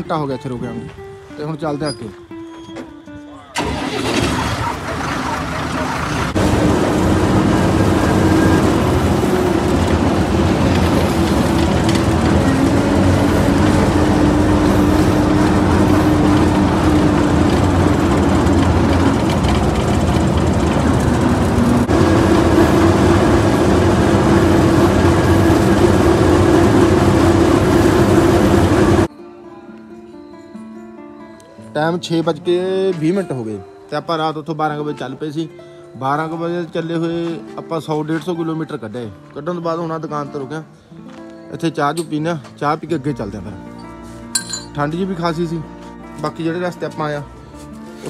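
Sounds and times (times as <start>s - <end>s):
heavy vehicle engine running: 3.6s - 29.1s.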